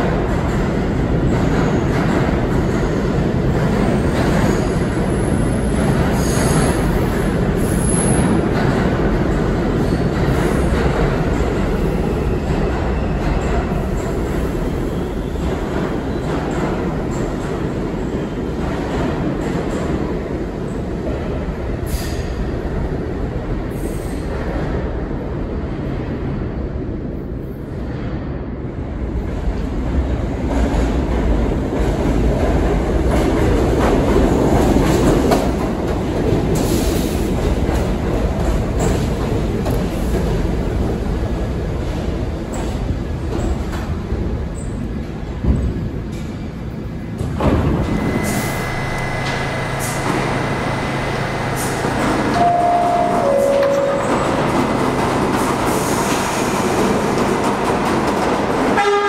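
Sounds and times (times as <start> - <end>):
subway train wheels rumbling: 0.0 - 59.0.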